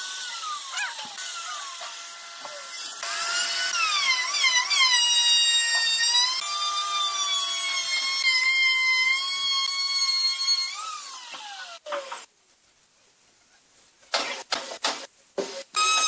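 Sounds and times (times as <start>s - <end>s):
electric router motor whine: 0.0s - 8.5s.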